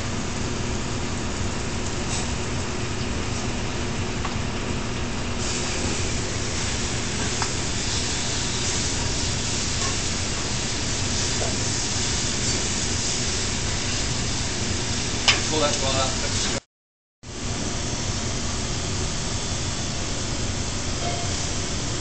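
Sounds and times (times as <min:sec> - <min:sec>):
gas burners hissing: 0:00.0 - 0:16.6, 0:17.3 - 0:22.0
spinach sizzling in hot oil: 0:05.4 - 0:16.5.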